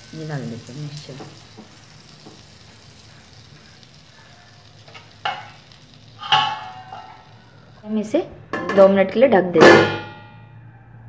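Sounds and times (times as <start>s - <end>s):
butter sizzling in a pan: 0.0s - 8.6s.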